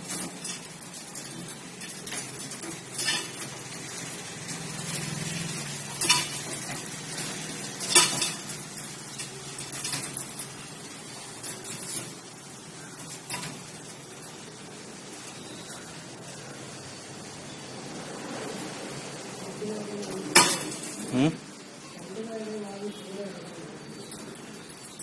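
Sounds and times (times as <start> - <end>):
cage wire clanking and rattling: 0.0 - 12.3, 13.0 - 14.5.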